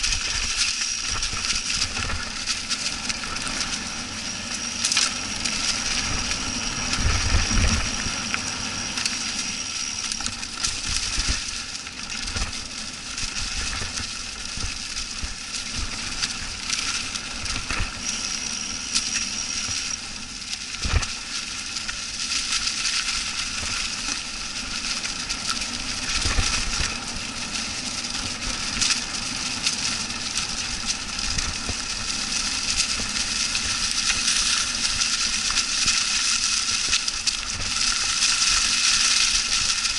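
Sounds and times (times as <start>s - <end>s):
bike rattling: 0.0s - 39.9s
bike tyres crunching through leaves: 0.0s - 39.9s.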